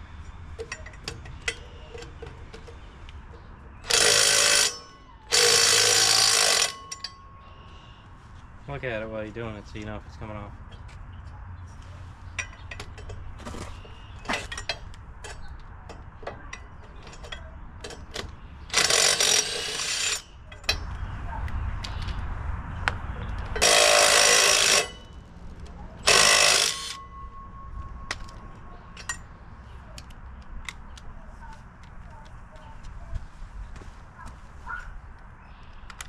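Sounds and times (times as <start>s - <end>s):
cordless power tool spinning nuts: 3.8s - 7.0s, 18.7s - 20.3s, 23.6s - 25.2s, 26.0s - 27.1s.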